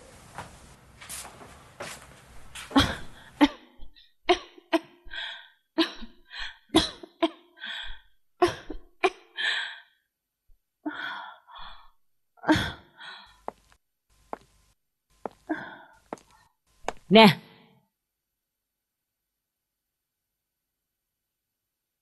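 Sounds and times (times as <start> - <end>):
person coughing: 2.7 - 5.0, 6.7 - 7.5.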